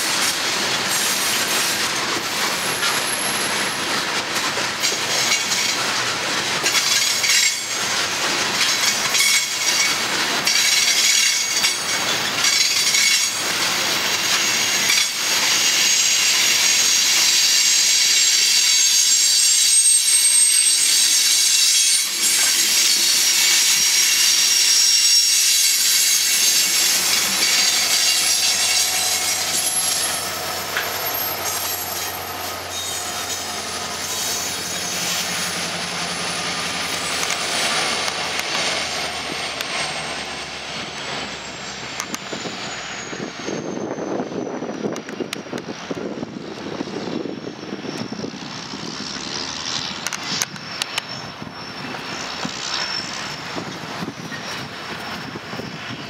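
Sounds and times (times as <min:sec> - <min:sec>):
diesel locomotive engine hum: 0:00.0 - 0:56.0
rail hiss: 0:00.0 - 0:56.0
train wheels clicking over rail joints: 0:00.0 - 0:56.0
wheels squealing: 0:06.6 - 0:56.0.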